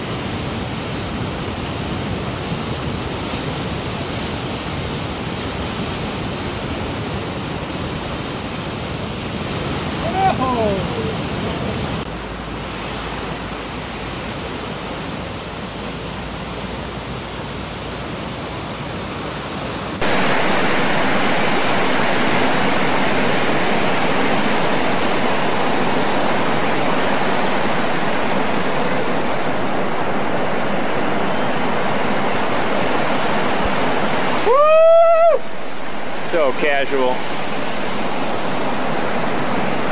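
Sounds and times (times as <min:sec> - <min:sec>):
ocean surf breaking: 0:00.0 - 0:39.9.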